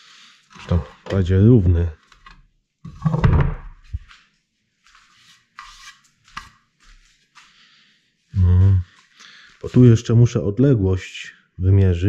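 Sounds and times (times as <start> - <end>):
wooden thud: 3.0 - 3.8.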